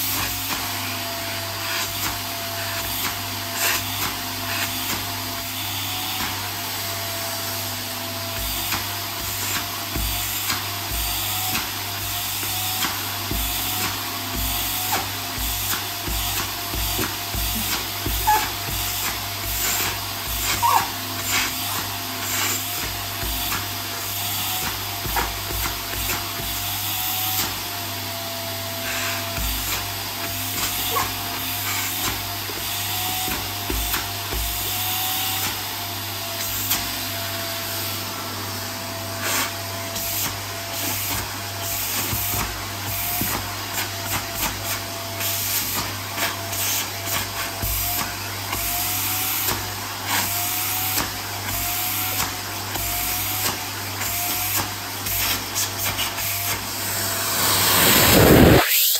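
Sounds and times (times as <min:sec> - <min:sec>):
vacuum cleaner running: 0:00.0 - 0:58.9.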